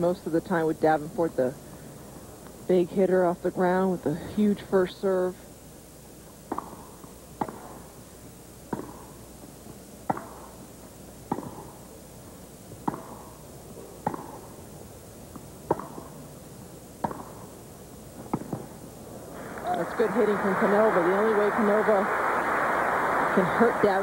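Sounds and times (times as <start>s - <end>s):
tennis racquets hitting ball: 6.5s - 7.9s, 8.7s - 9.2s, 10.0s - 10.5s, 11.3s - 11.8s, 12.8s - 14.6s, 15.3s - 16.2s, 17.0s - 17.5s, 18.2s - 18.8s
crowd murmur: 19.3s - 24.0s.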